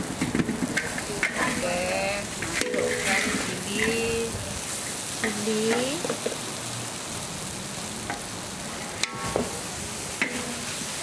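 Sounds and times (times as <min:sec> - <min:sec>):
food sizzling in a wok: 0:00.0 - 0:11.0
metal spatula scraping: 0:00.8 - 0:04.2.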